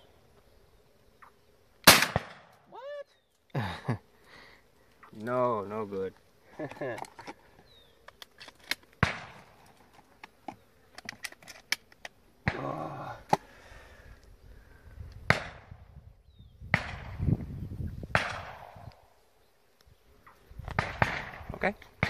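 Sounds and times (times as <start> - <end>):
shotgun shots: 1.8 - 2.5, 9.0 - 9.5, 18.1 - 18.8, 20.8 - 21.5
faint distant gunshots: 1.9 - 2.5, 9.0 - 9.5, 15.3 - 15.8, 16.7 - 17.2, 18.1 - 18.8, 20.8 - 21.5.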